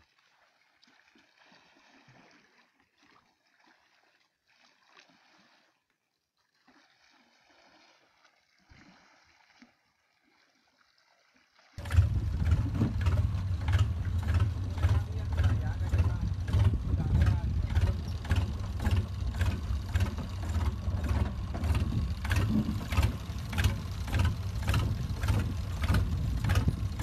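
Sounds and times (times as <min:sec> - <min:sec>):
faint water lapping on boat: 0:00.0 - 0:27.0
boat engine running: 0:11.8 - 0:27.0.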